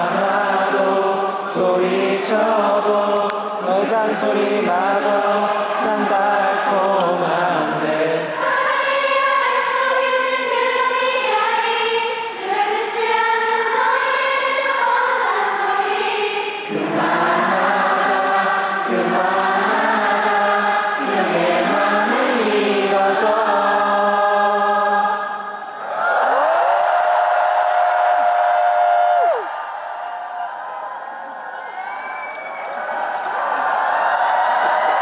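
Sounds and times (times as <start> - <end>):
crowd singing in unison: 0.0 - 26.0.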